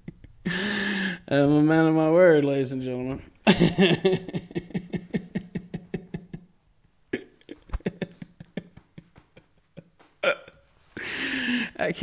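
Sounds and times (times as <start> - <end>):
man laughing: 3.4 - 6.5, 7.1 - 10.6.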